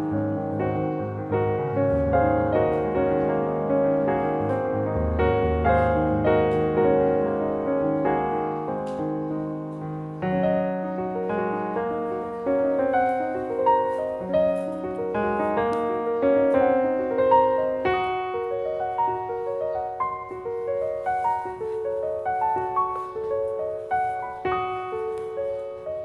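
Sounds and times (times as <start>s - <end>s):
gentle piano music: 0.0s - 26.0s.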